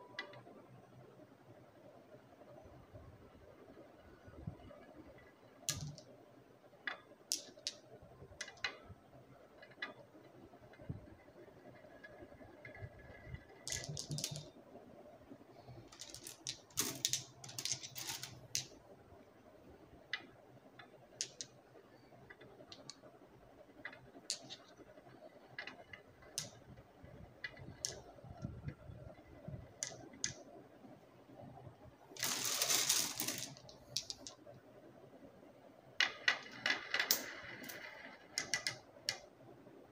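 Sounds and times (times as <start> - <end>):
marbles clattering together: 5.7 - 6.1, 7.3 - 8.8, 12.7 - 14.5, 15.7 - 18.8, 20.2 - 21.6, 22.3 - 23.1, 23.8 - 24.8, 25.4 - 26.8, 27.4 - 30.4, 32.2 - 34.4, 36.0 - 39.2
marbles rolling on wooden track: 11.6 - 14.6, 15.7 - 18.8, 20.1 - 21.6, 22.2 - 30.4, 32.2 - 34.4, 36.0 - 39.2.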